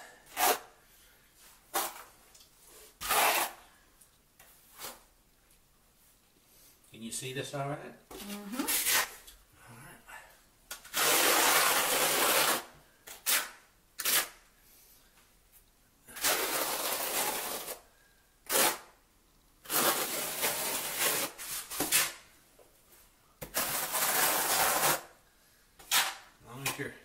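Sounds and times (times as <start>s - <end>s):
trowel scraping through mortar: 3.0s - 3.6s.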